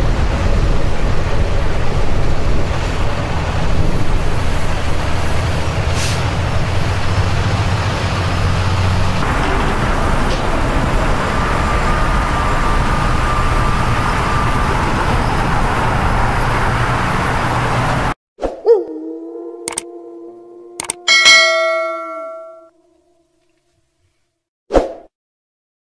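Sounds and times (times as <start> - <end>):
deep truck engine rumble: 0.0 - 18.2
freeway traffic passing: 0.0 - 18.2.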